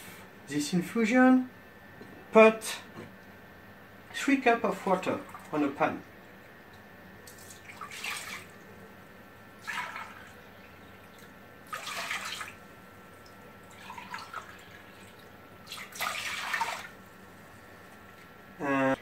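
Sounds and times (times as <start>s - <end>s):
water pouring: 7.3s - 8.7s, 9.6s - 17.1s.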